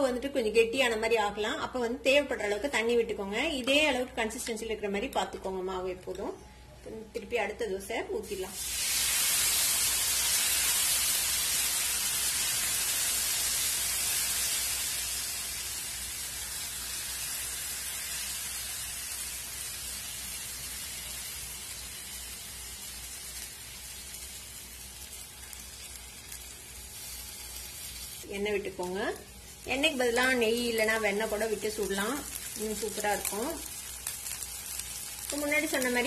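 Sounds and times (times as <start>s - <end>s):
batter sizzling on a griddle: 8.2s - 36.0s.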